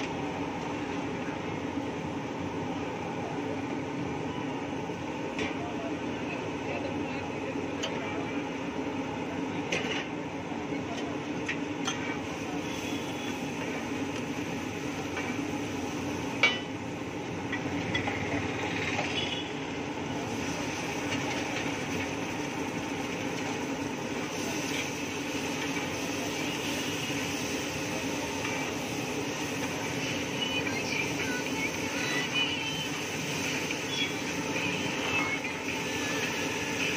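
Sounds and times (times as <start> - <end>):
vegetables sizzling on a griddle: 11.2 - 36.9.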